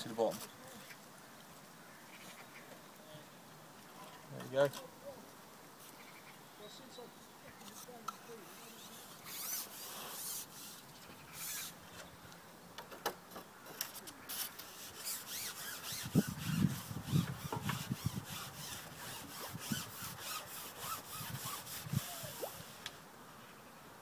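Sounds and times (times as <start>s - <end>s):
fishing pole sections scraping: 7.6s - 12.1s, 13.7s - 22.9s.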